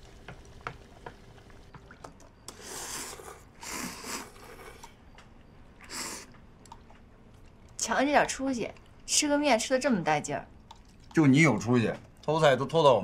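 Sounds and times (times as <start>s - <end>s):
person slurping noodles: 2.5s - 5.0s.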